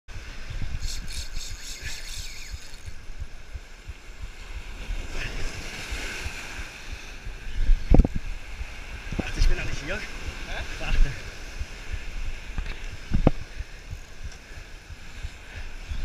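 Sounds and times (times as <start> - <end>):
wind buffeting microphone: 0.1 - 16.0
fishing reel drag clicking: 0.8 - 3.0.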